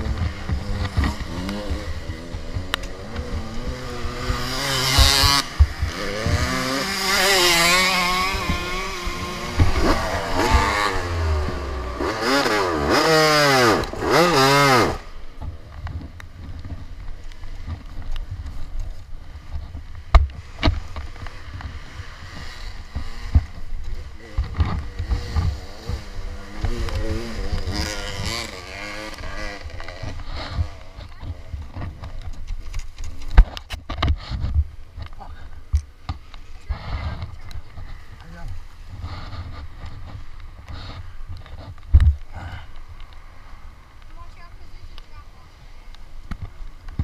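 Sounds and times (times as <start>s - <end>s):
dirt bike engine revving: 0.0s - 15.4s, 20.8s - 32.0s.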